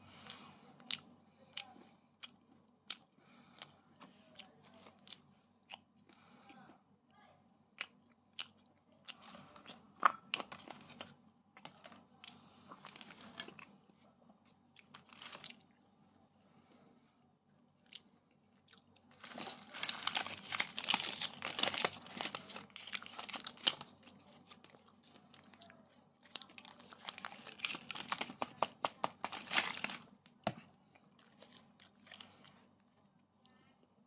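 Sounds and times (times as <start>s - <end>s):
plastic wrappers crackling: 19.1s - 24.8s, 26.2s - 30.1s.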